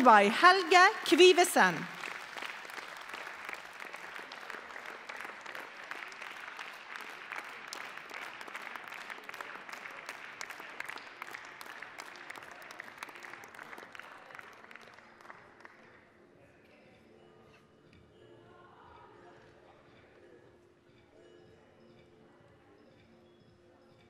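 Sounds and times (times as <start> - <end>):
large audience applauding: 0.0 - 16.0.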